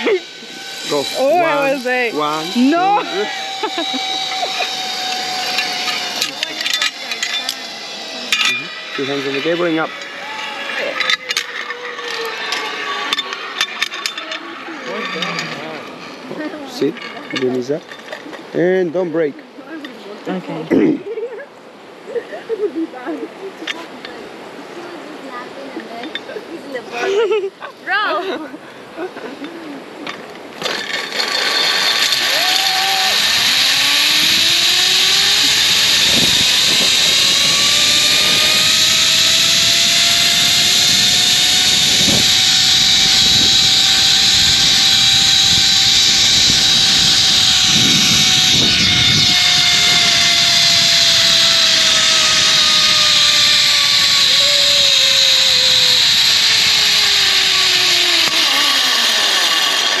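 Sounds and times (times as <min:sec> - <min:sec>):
zip line pulleys whining on cable: 0:00.0 - 1:00.0.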